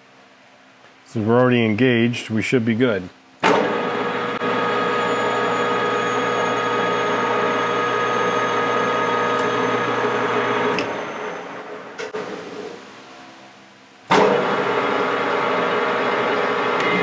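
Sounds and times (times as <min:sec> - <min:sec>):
metal lathe whine: 0:03.5 - 0:12.1.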